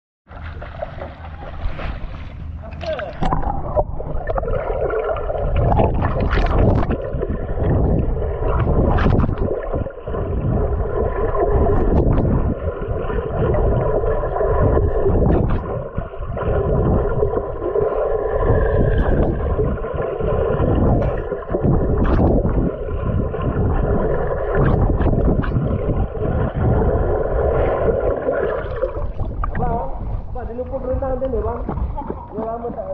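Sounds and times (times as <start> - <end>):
muffled underwater rumble: 0.3 - 32.9.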